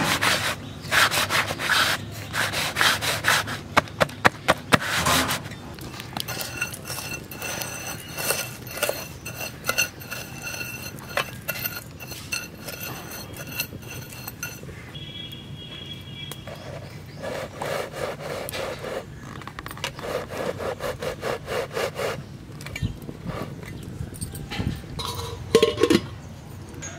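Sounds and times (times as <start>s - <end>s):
ladle scraping sand in iron pan: 0.0s - 15.0s, 16.5s - 19.3s, 19.9s - 22.3s, 25.0s - 26.1s.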